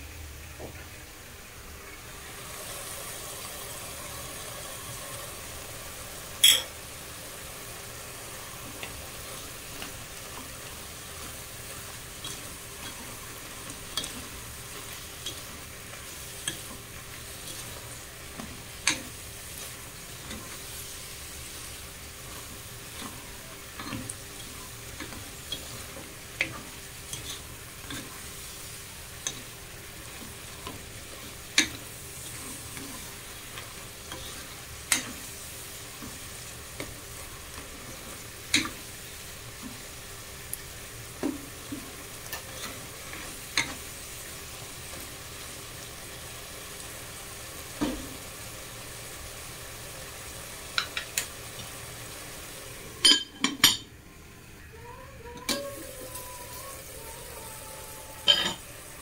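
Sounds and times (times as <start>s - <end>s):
chicken sizzling in a pan: 0.0s - 59.0s
spatula scraping pan: 9.7s - 38.9s, 41.3s - 43.9s.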